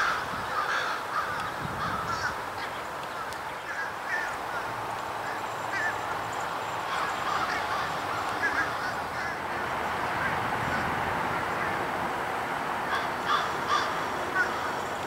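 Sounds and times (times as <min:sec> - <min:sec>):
diesel locomotive engine: 0:03.9 - 0:15.0.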